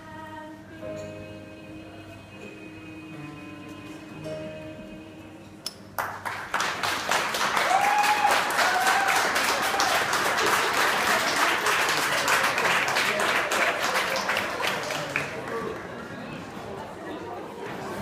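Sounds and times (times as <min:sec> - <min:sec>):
crowd applauding: 0:06.0 - 0:16.5.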